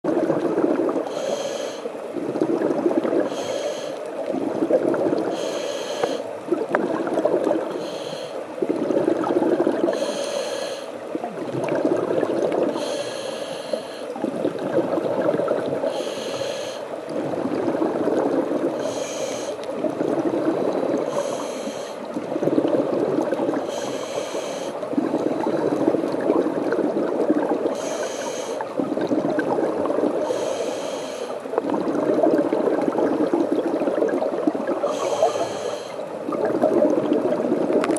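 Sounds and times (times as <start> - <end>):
exhaled bubbles rumbling: 0.0 - 3.4, 4.0 - 5.6, 6.3 - 10.2, 11.0 - 13.3, 13.9 - 37.9
regulator hissing inhale: 1.1 - 1.9, 3.3 - 4.0, 5.3 - 6.3, 7.7 - 8.4, 9.9 - 11.0, 12.7 - 14.2, 15.9 - 17.0, 18.8 - 19.7, 21.0 - 22.1, 23.6 - 24.8, 27.8 - 28.7, 30.2 - 31.4, 34.8 - 36.1.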